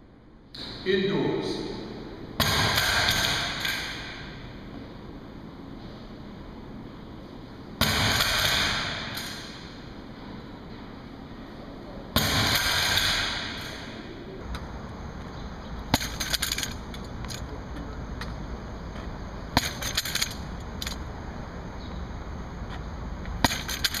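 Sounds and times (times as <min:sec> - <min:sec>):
clicks knocks and rattles: 0:16.0 - 0:17.5, 0:19.6 - 0:21.0.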